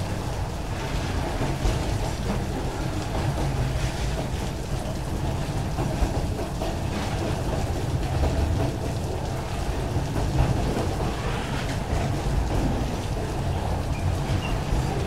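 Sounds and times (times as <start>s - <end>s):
heavy rain: 0.0s - 15.0s.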